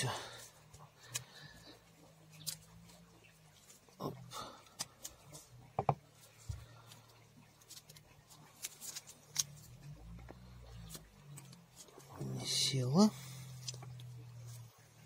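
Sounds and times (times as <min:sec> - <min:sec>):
dull knock: 0:05.8 - 0:06.0.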